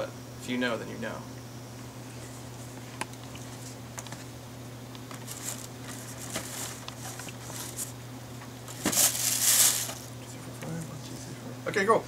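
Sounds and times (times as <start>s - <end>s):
plastic packages rustling and clicking: 5.1s - 7.9s, 8.7s - 10.1s.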